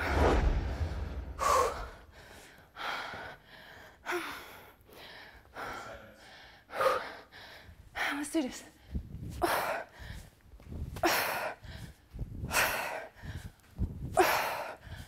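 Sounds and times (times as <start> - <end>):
low rumble: 0.0 - 2.2
woman breathing hard: 0.0 - 15.0.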